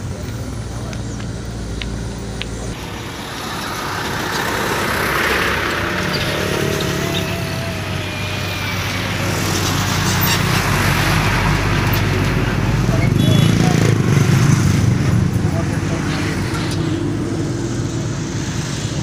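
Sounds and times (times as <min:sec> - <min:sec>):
heavy trucks passing: 0:00.0 - 0:19.0
thin whine: 0:01.6 - 0:13.4.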